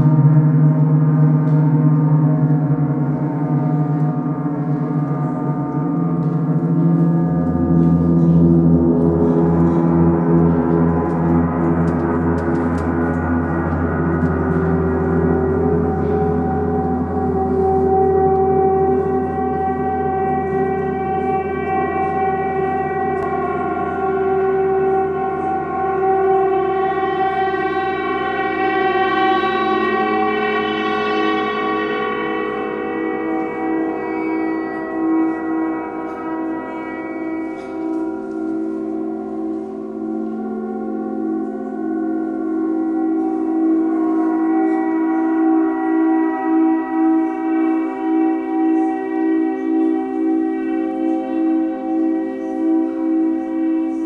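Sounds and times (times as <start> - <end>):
gongs droning: 0.0 - 54.0.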